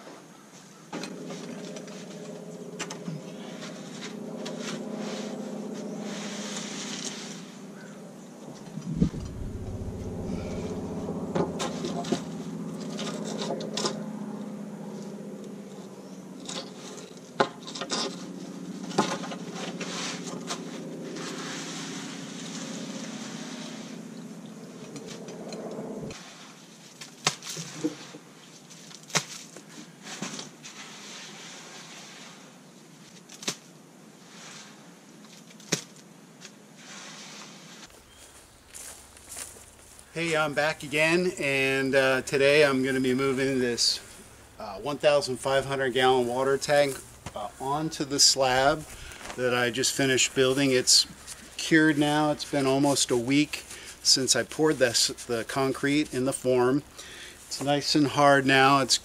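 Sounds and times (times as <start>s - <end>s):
concrete mixer humming: 1.0s - 26.2s, 37.8s - 59.0s
board scraping wet concrete: 16.4s - 24.0s, 36.8s - 37.9s.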